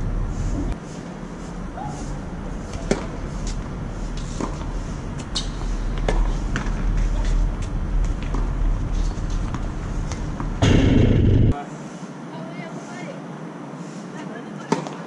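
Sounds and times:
steady low rumble: 9.7 - 11.6.

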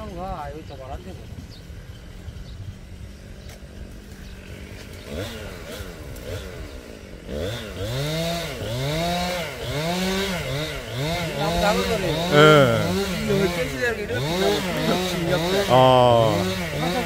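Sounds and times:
chainsaw revving: 5.0 - 17.0.

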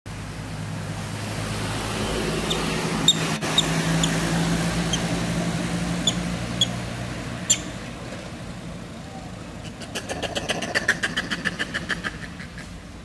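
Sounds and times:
vehicle engine running: 0.1 - 13.0
short high squeaks: 2.5 - 4.2, 6.0 - 6.8, 7.5 - 7.8.

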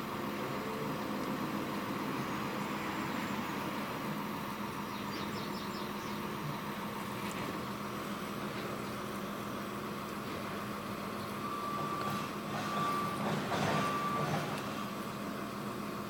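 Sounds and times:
short high beeps: 11.5 - 14.4.

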